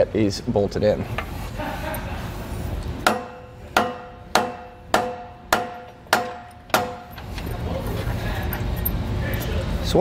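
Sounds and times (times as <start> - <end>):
mallet striking steel plate: 3.0 - 7.2.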